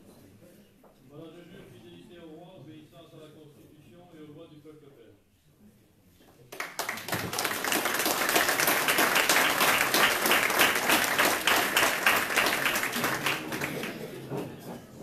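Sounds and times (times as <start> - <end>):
audience applauding: 6.5 - 14.4.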